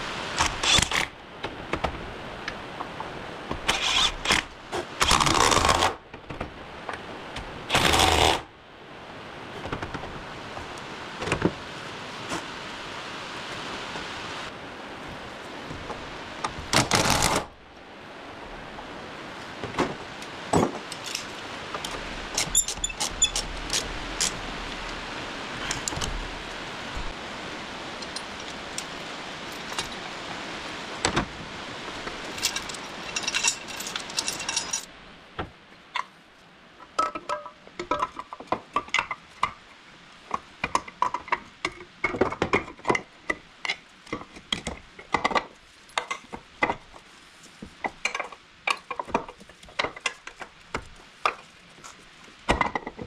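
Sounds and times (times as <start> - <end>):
metal tools clinking and rattling: 20.6 - 24.4, 29.5 - 30.0, 32.3 - 34.9.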